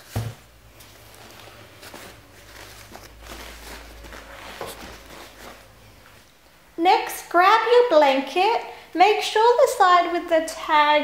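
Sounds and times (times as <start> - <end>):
soft handling rustles and knocks: 0.0 - 6.3
low steady hum: 0.0 - 11.0.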